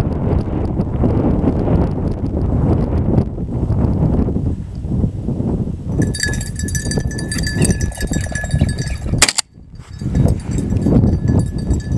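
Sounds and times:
dog bell jingling: 6.0s - 11.9s.

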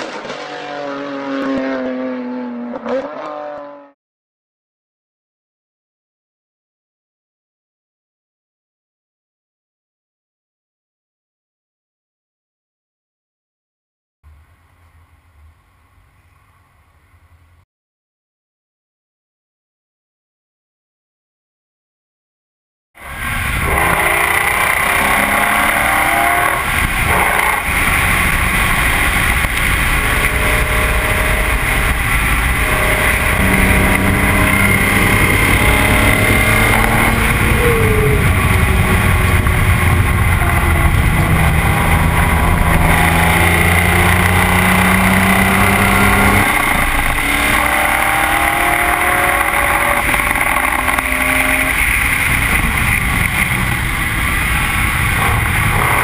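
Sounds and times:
car engine revving: 0.0s - 4.0s, 23.0s - 56.0s.

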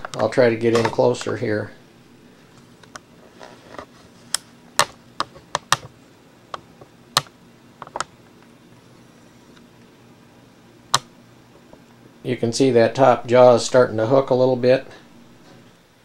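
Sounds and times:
sharp irregular clicks and taps: 4.3s - 5.9s, 6.5s - 8.2s, 10.9s - 11.1s.

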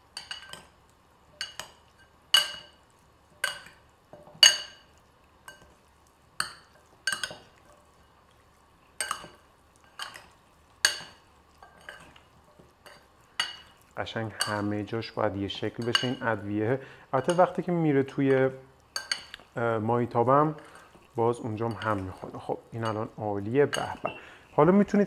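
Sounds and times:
metal spoon clinking glass bowl: 0.2s - 0.7s, 1.4s - 2.8s, 3.4s - 5.8s, 6.4s - 7.5s, 9.0s - 12.2s, 12.8s - 13.8s, 14.4s - 14.7s, 15.7s - 16.4s, 17.2s - 17.6s, 18.9s - 19.5s, 20.6s - 24.3s.

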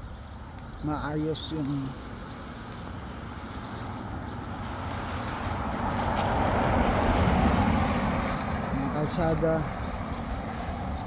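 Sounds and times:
car on a wet road: 2.3s - 11.0s.

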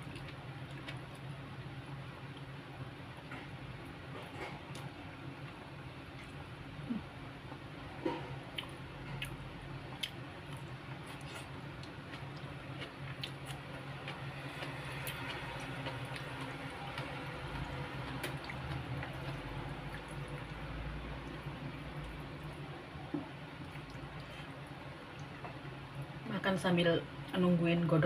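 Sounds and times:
wet chewing with mouth clicks: 0.0s - 1.3s, 6.1s - 22.6s
steady low hum: 0.0s - 28.0s.

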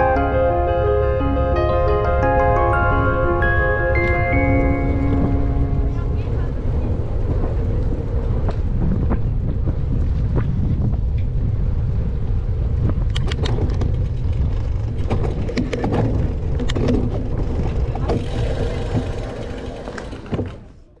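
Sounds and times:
wind and tyres on asphalt rumble: 4.0s - 21.0s.

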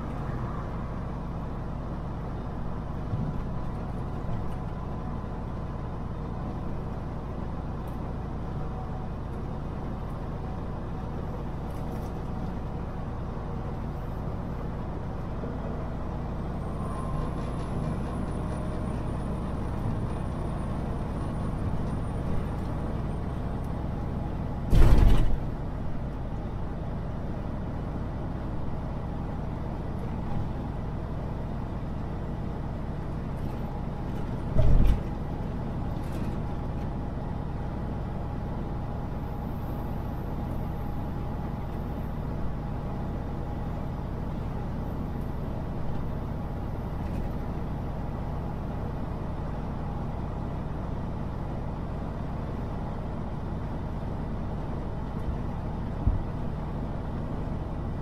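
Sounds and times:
truck engine and road rumble: 0.0s - 58.0s
loud short thumps: 24.7s - 25.4s.

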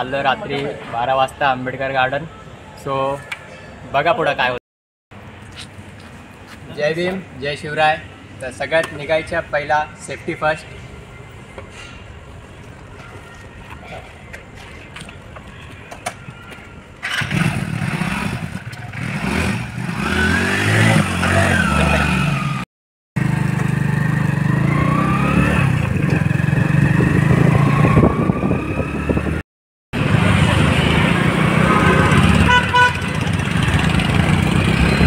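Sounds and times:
motorcycle engine revving: 17.0s - 22.6s, 23.2s - 29.4s, 30.0s - 35.0s.

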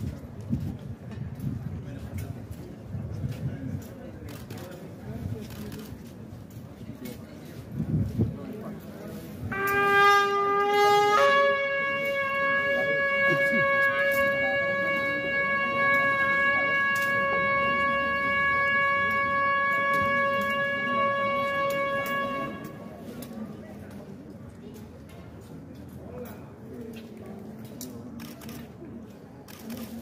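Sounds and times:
long horn call: 9.3s - 23.4s.

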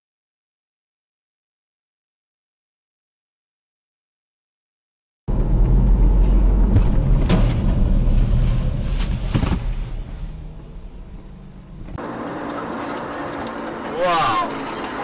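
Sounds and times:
car road and engine rumble: 5.3s - 15.0s
light road noise: 5.3s - 15.0s.

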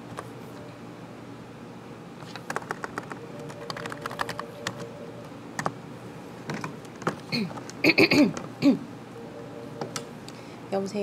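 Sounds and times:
computer keyboard typing: 2.4s - 5.8s.

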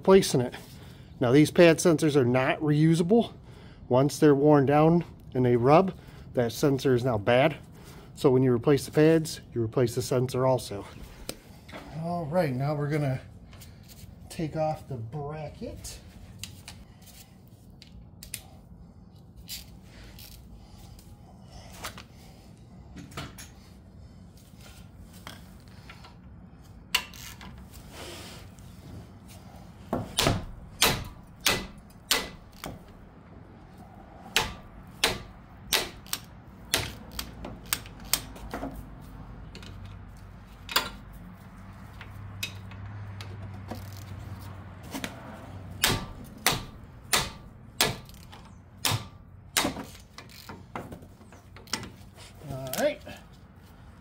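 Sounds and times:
hammer striking metal wrench: 30.2s - 32.7s, 34.3s - 37.2s.

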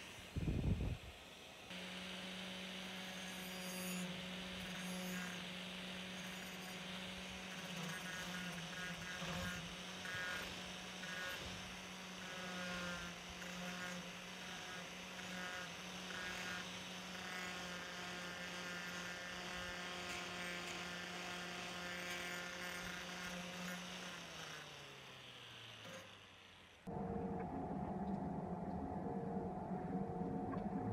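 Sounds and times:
angle grinder grinding metal: 1.7s - 26.3s.

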